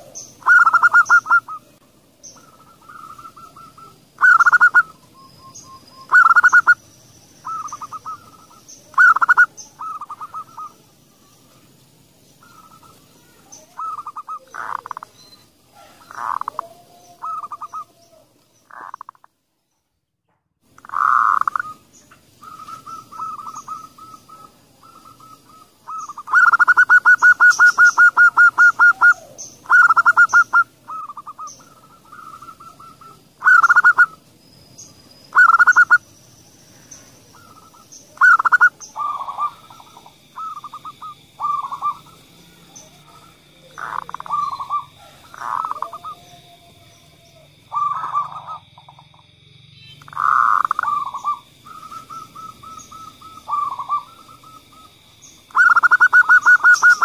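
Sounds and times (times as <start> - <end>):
dove cooing: 0.0 - 1.8, 2.4 - 5.2, 6.1 - 6.8, 7.4 - 10.9, 12.4 - 15.1, 15.7 - 19.0, 20.8 - 34.2, 35.3 - 36.0, 37.0 - 49.2, 50.1 - 57.0
fast stuttering bird trill: 0.4 - 1.6, 5.7 - 6.8, 7.4 - 10.7, 13.8 - 15.1, 22.4 - 34.2, 35.3 - 36.1, 37.4 - 42.2, 49.8 - 57.0.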